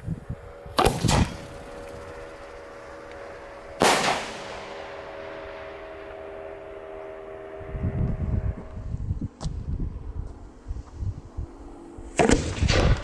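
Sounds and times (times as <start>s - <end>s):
firework shell bursting with loud bang: 0.7s - 2.2s, 3.8s - 5.2s.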